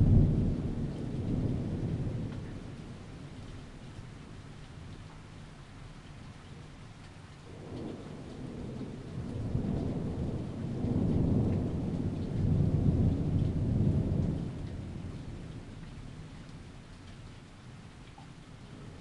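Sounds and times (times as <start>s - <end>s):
thunder rumbling: 0.0s - 3.6s, 7.5s - 16.6s
steady rain: 0.0s - 19.0s.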